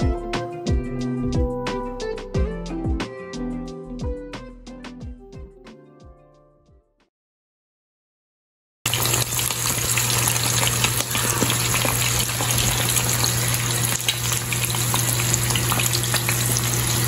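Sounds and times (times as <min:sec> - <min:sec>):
eggs sizzling in oil: 0:08.9 - 0:17.0.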